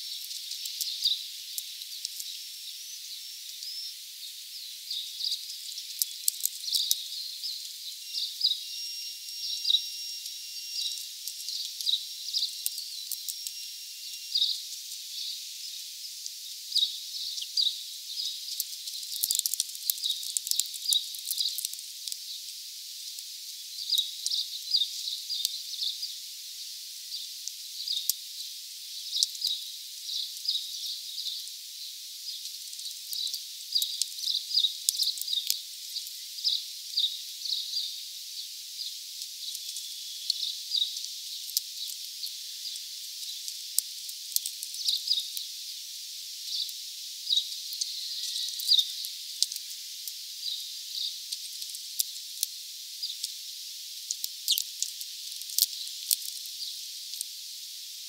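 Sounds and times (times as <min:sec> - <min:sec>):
high chirps of small birds: 0:00.0 - 0:22.5, 0:23.6 - 0:43.6, 0:44.4 - 0:45.5, 0:46.4 - 0:49.7, 0:50.4 - 0:52.2, 0:53.0 - 0:53.4, 0:54.4 - 0:54.8
bird cracking seeds: 0:00.1 - 0:02.4, 0:05.7 - 0:07.0, 0:18.5 - 0:22.2, 0:42.7 - 0:45.5, 0:47.7 - 0:50.2, 0:54.0 - 0:57.3.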